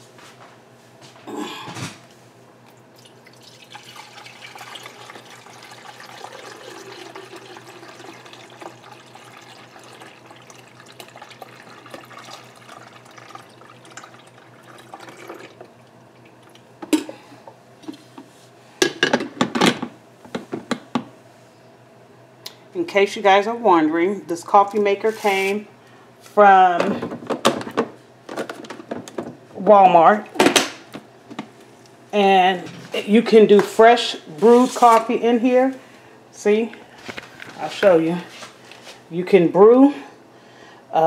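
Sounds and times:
water pouring from glass carafe: 3.0 - 16.6.

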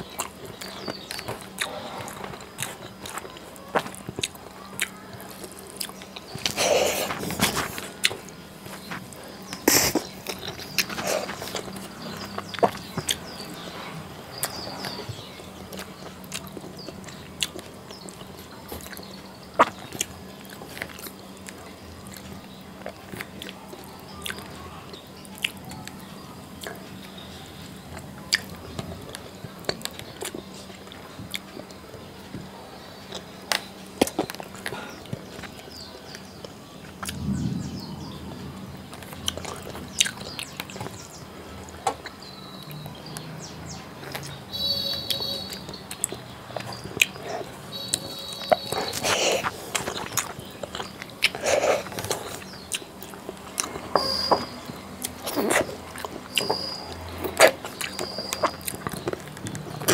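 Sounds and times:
chewing and lip sounds: 0.0 - 37.6, 38.9 - 59.9
low steady hum: 0.0 - 43.0
eating with fingers from plate: 45.5 - 59.9.

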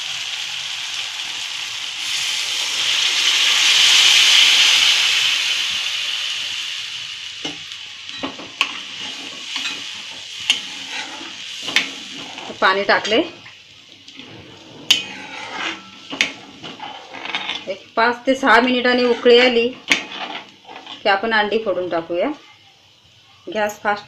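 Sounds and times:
water poured into hot pan: 0.0 - 14.3
masala sizzling in a pan: 0.0 - 24.0
steel spoon scraping a pan: 7.4 - 13.3, 14.1 - 17.8, 18.4 - 21.2.

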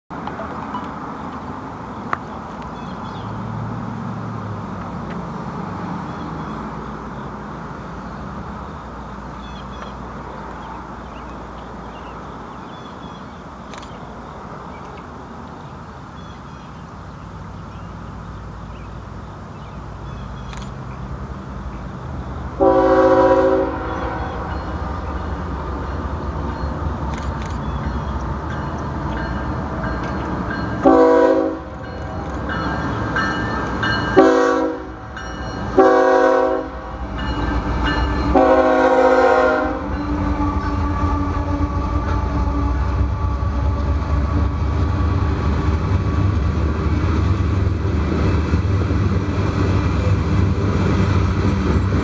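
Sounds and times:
locomotive air horn blast: 22.6 - 24.6, 30.8 - 31.8, 34.2 - 35.1, 35.7 - 37.2, 38.3 - 45.2.

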